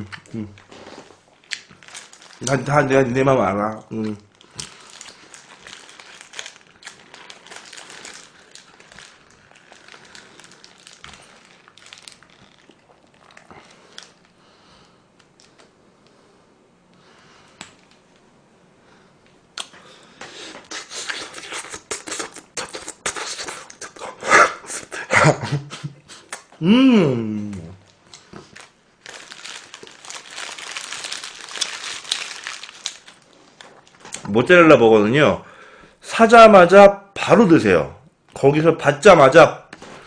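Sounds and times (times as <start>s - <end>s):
paper wrapper crinkling: 0.7s - 14.4s, 27.8s - 34.4s
chewing: 4.4s - 14.3s.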